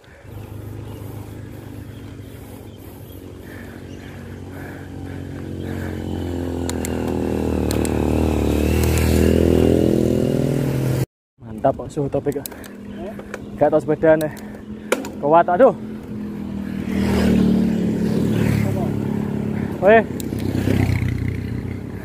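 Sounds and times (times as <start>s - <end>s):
motorcycle engine approaching: 0.0s - 22.0s.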